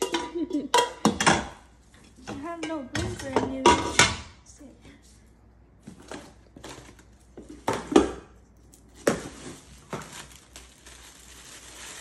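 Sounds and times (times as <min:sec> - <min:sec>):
cookware knocking and clattering: 0:00.0 - 0:04.3.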